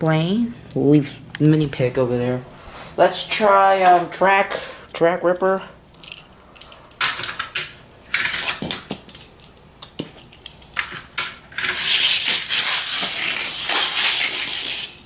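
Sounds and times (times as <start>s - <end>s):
toy car clattering on plastic track: 7.0s - 9.3s, 10.2s - 15.0s.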